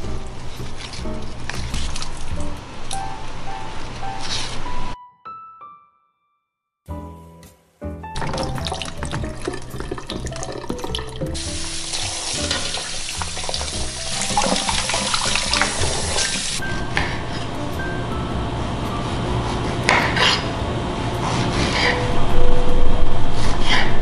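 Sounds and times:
jazz piano music: 0.0s - 6.3s, 6.9s - 24.0s
tap water splashing into sink: 8.2s - 16.6s.

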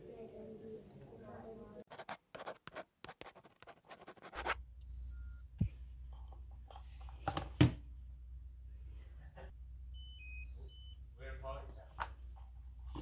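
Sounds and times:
pen scratching on paper: 1.9s - 4.6s
high electronic beeps: 4.8s - 5.5s, 10.0s - 11.0s.

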